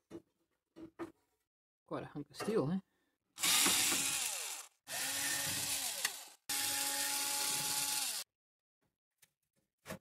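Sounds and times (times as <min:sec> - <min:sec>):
cordless screwdriver whirring: 0:03.4 - 0:08.3.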